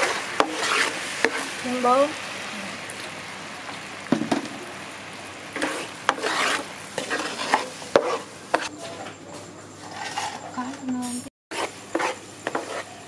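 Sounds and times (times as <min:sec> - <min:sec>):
spatula scraping a pan: 0:00.0 - 0:01.9, 0:05.5 - 0:09.1, 0:09.7 - 0:13.0
sauce sizzling in a frying pan: 0:00.0 - 0:08.7, 0:10.6 - 0:13.0.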